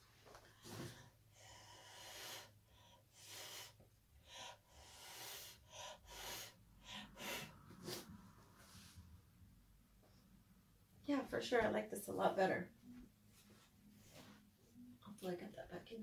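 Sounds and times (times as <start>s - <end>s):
breath puffs hissing: 0.6s - 8.1s.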